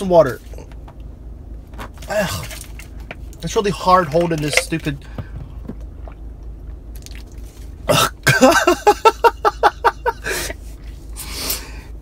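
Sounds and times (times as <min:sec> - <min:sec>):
car cabin hum: 0:00.0 - 0:11.2
man laughing: 0:08.2 - 0:10.6.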